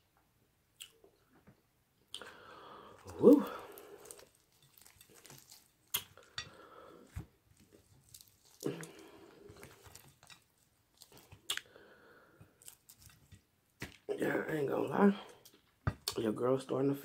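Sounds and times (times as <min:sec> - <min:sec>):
crispy breading crackling: 0:02.2 - 0:11.8, 0:12.5 - 0:14.0
chewing: 0:03.0 - 0:11.8, 0:12.5 - 0:13.4.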